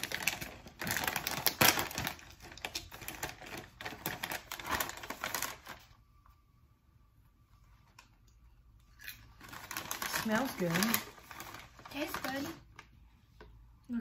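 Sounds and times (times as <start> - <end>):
plastic snack bag crinkling: 0.0 - 6.0, 9.0 - 12.8.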